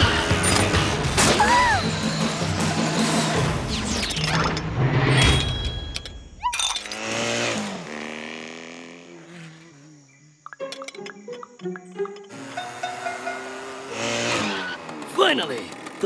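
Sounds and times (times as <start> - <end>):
scooter engine buzzing off: 6.9 - 10.2, 12.3 - 16.0.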